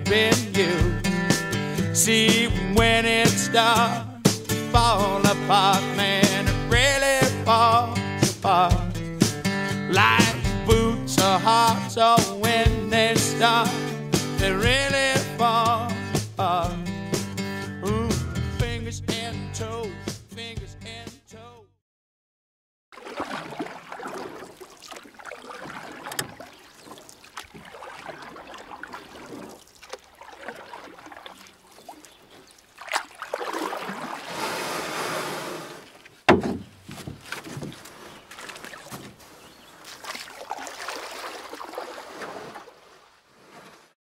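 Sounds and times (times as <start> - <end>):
paddle water sloshing and trickling: 23.0 - 44.0
paddle clicks: 23.3 - 33.3, 35.8 - 40.8
sharp knock on canoe: 36.3 - 37.8.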